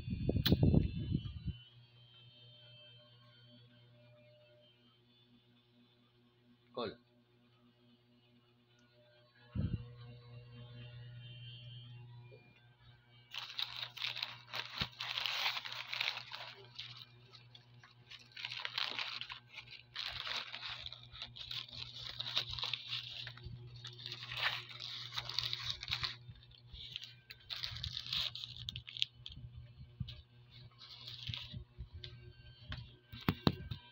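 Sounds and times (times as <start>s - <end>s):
steady low hum: 0.0s - 33.9s
paper wrapper crinkling and tearing: 13.3s - 32.1s.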